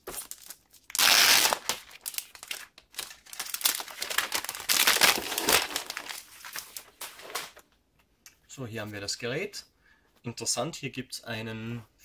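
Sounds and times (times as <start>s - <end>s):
plastic wrap crinkling: 0.0s - 7.6s.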